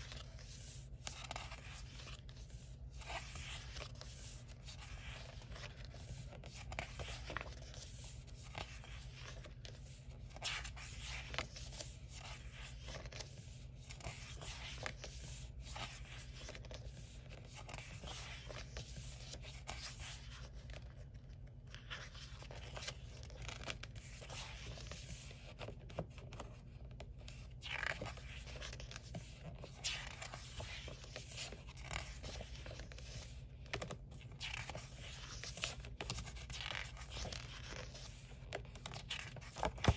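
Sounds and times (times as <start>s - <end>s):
book pages turning and rustling: 0.0s - 39.9s.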